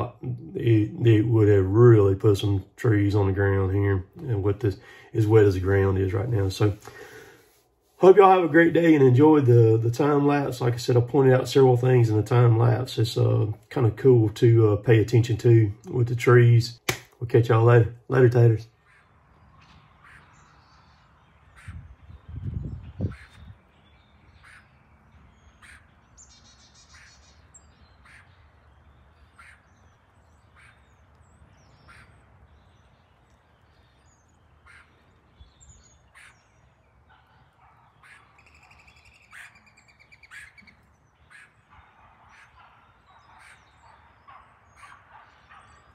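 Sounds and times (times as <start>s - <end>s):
bird song trills: 18.7s - 45.9s
bird short sharp calls: 21.5s - 23.6s, 24.3s - 45.9s.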